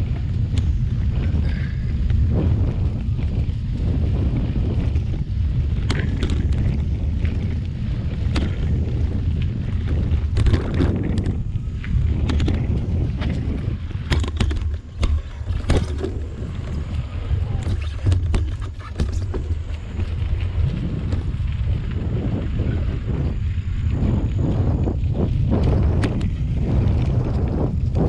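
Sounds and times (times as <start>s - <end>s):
bike clicks and rattles: 0.0s - 28.0s
tyres rumbling on dirt: 0.0s - 28.0s
wind on microphone: 0.0s - 28.0s.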